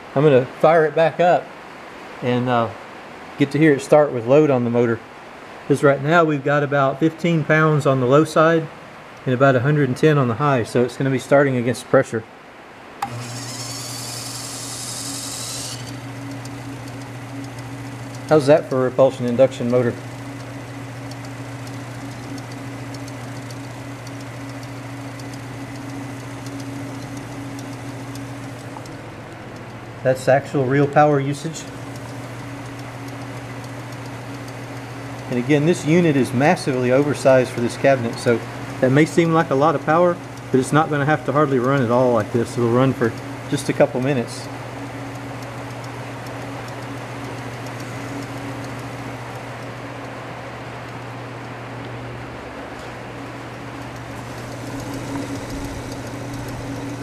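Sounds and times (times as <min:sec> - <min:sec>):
refrigerator compressor humming: 0:00.0 - 0:57.0
faint ticking: 0:13.0 - 0:52.0, 0:53.4 - 0:57.0.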